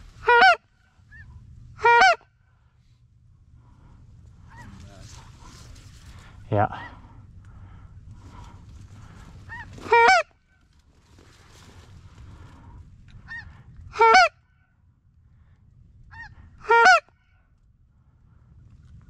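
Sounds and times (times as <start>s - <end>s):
goose call honks: 0.1s - 2.3s, 9.5s - 10.4s, 13.3s - 14.4s, 16.1s - 17.1s.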